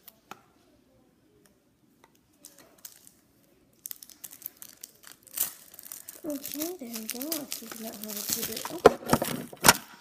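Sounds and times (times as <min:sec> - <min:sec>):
plastic crinkling: 0:02.4 - 0:09.9.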